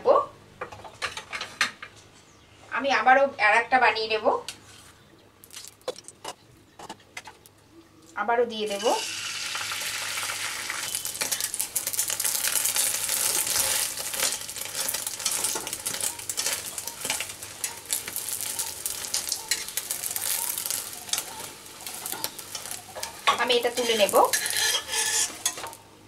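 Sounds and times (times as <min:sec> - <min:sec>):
batter sizzling in hot oil: 0:08.7 - 0:25.8
spatula scraping a pan: 0:10.1 - 0:25.8.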